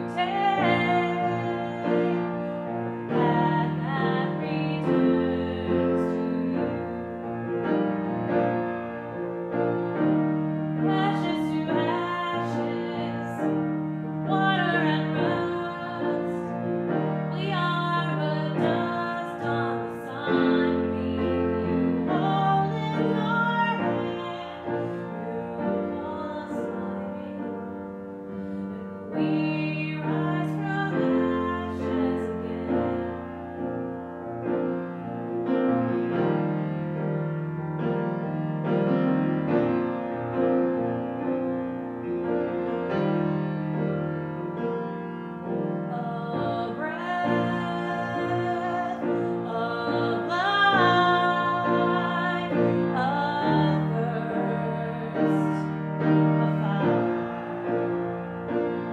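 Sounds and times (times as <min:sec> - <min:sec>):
woman singing: 0:00.0 - 0:07.0, 0:10.8 - 0:27.8, 0:29.0 - 0:33.7, 0:45.8 - 0:57.8
grand piano: 0:00.0 - 0:58.9.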